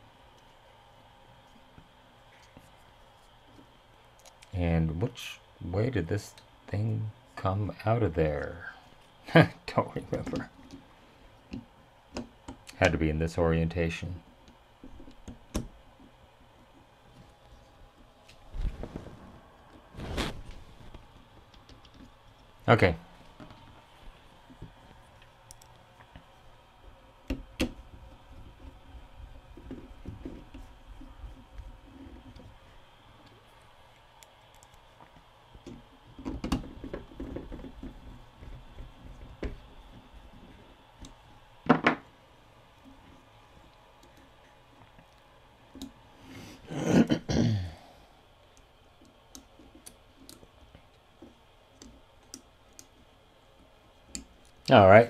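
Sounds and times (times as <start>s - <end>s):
small clicks of handled wires: 1.5s - 4.6s, 20.6s - 22.5s, 24.5s - 26.3s, 48.5s - 53.1s, 54.0s - 54.7s.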